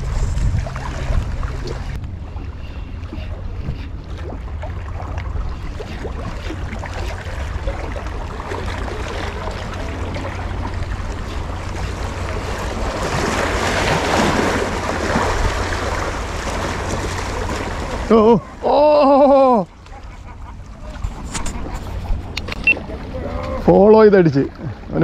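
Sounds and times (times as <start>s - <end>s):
wind buffeting microphone: 0.0s - 18.7s
waves washing against rocks: 7.5s - 18.8s.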